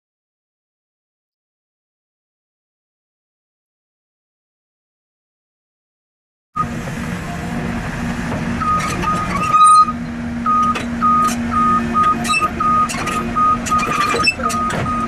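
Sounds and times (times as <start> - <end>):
diesel engine running: 6.6 - 15.0
steel tracks clanking on metal: 7.4 - 10.0, 10.6 - 15.0
travel alarm beeping: 8.6 - 15.0.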